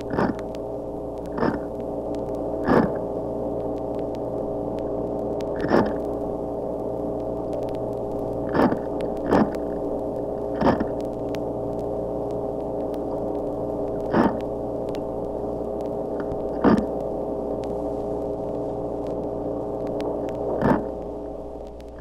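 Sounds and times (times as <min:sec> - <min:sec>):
fish grunting underwater: 0:00.0 - 0:00.5, 0:01.3 - 0:01.7, 0:02.6 - 0:03.1, 0:05.5 - 0:06.0, 0:08.4 - 0:11.0, 0:13.8 - 0:14.5, 0:16.2 - 0:17.0, 0:20.3 - 0:21.0
steady background hum: 0:00.0 - 0:22.0.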